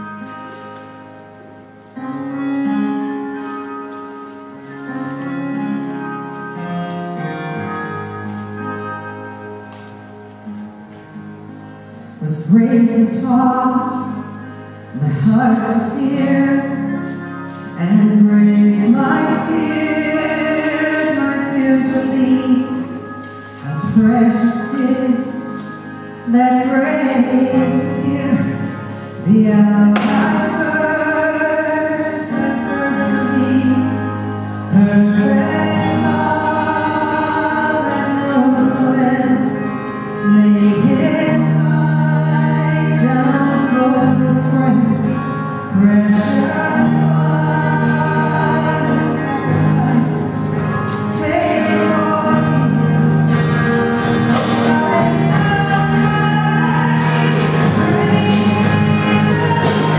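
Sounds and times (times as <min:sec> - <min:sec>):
acoustic guitar: 0:00.0 - 0:59.9
keyboard: 0:00.0 - 0:59.9
person singing: 0:12.2 - 0:59.9
drums: 0:53.3 - 0:59.9.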